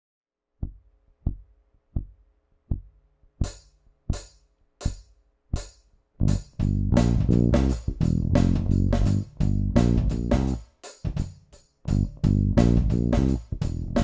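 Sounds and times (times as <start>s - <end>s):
drum groove: 0.6s - 14.0s
kick drum beats: 0.6s - 14.0s
electric bass: 6.2s - 10.6s, 11.9s - 14.0s.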